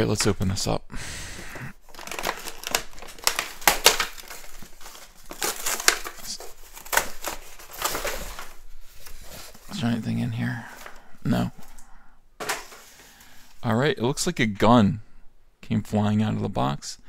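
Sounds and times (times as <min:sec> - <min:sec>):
cardboard box crinkling and crackling: 0:01.8 - 0:11.8, 0:12.4 - 0:13.2.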